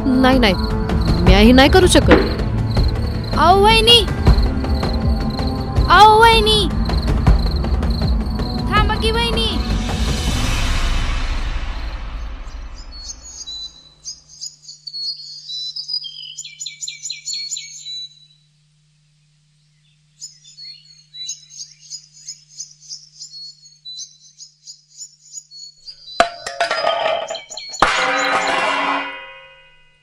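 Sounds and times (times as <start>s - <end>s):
small birds chirping: 0.2s - 9.6s, 12.5s - 18.5s, 19.5s - 28.5s
sharp loud knocks: 2.0s - 2.9s.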